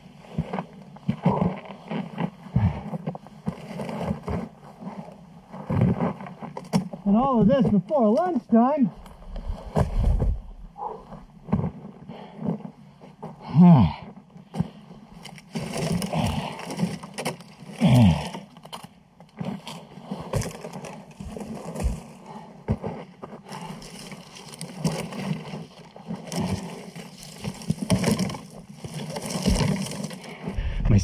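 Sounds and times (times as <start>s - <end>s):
person grunting: 13.5s - 14.0s, 17.8s - 18.4s, 30.6s - 31.0s
dry branches cracking: 15.2s - 22.2s, 23.5s - 30.5s
scraping on gravel: 19.4s - 31.0s.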